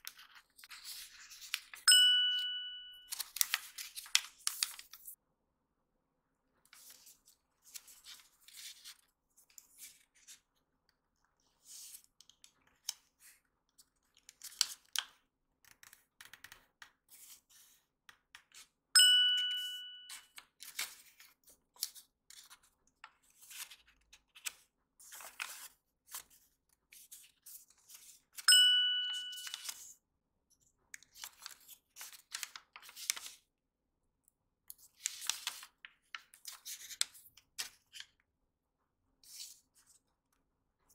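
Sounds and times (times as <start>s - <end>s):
paper rustling and creasing: 0.0s - 1.8s, 3.1s - 5.2s, 6.7s - 10.5s, 20.6s - 28.5s, 31.1s - 33.4s, 34.8s - 38.1s
loud chime: 1.9s - 3.1s, 19.0s - 20.2s, 28.5s - 29.7s.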